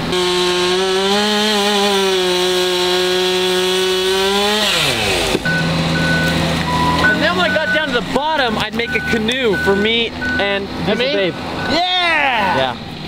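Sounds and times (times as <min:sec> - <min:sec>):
chainsaw running: 0:00.0 - 0:08.3.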